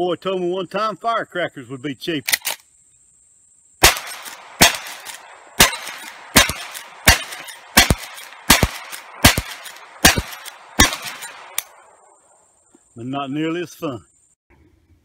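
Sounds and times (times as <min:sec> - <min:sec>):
rifle shots: 0:03.8 - 0:12.0.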